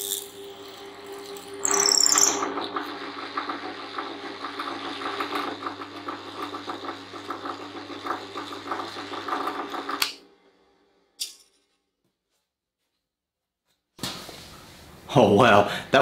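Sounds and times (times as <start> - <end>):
drill press motor humming: 0.0 - 11.1.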